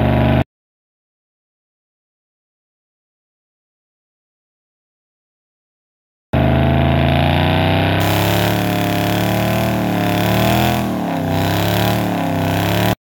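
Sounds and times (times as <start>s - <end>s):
car engine revving high: 6.4s - 13.0s.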